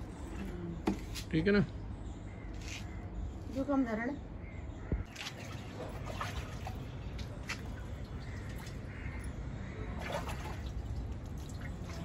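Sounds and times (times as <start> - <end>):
hands splashing in water: 5.1 - 8.9, 10.0 - 12.0
bird calling: 7.6 - 10.5.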